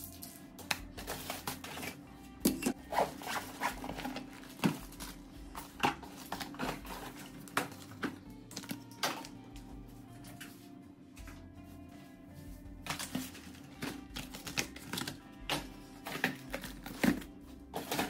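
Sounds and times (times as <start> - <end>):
packaging rustling: 1.0 - 2.0, 2.9 - 9.4, 12.8 - 15.2
rummaging in wooden drawer: 2.6 - 8.8.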